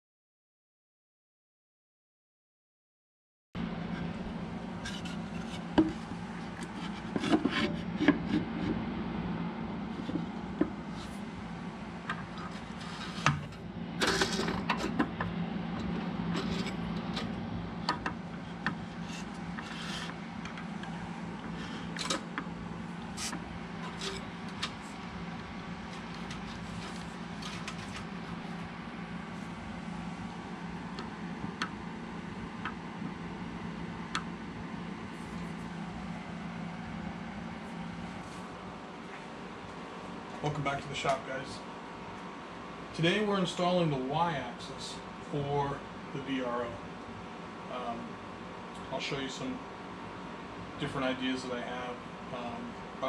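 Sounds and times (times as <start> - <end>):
steady low hum: 3.6 - 53.0.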